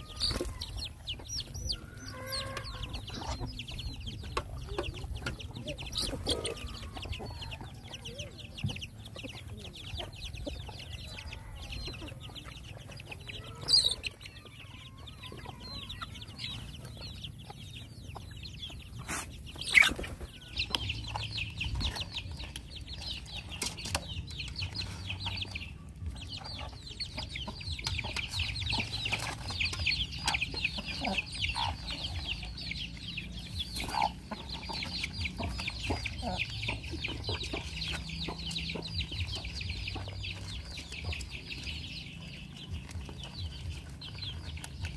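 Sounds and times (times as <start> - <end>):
chickens clucking: 0.0 - 44.9.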